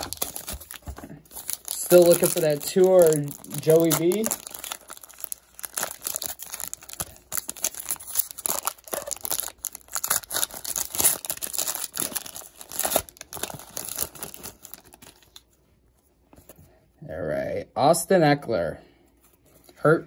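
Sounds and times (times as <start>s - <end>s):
foil wrapper crinkling and tearing: 0.0s - 15.5s.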